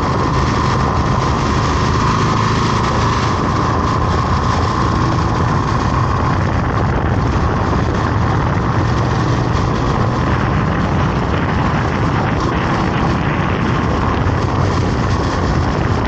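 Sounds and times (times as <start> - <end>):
road and wind noise: 0.0 - 16.0
vehicle engine droning: 0.0 - 16.0.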